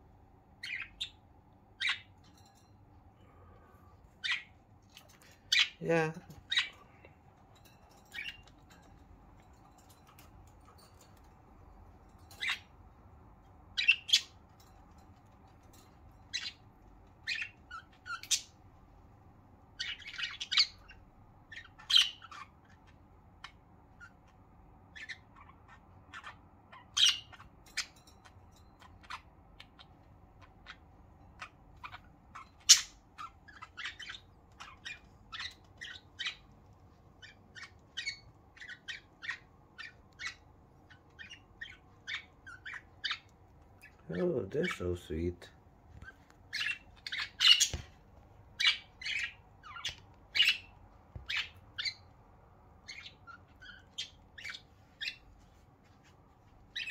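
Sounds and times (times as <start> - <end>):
budgerigars chirping: 0.6 - 2.4, 4.2 - 5.8, 6.4 - 6.9, 8.1 - 8.9, 12.3 - 12.7, 13.7 - 14.4, 16.3 - 18.6, 19.7 - 45.3, 46.0 - 55.4, 56.6 - 56.9.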